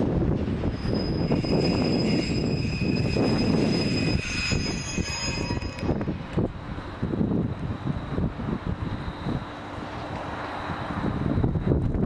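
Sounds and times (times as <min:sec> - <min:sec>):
railway station background noise: 0:00.0 - 0:12.0
wind buffeting microphone: 0:00.0 - 0:12.0
high-pitched squeal: 0:00.6 - 0:06.2.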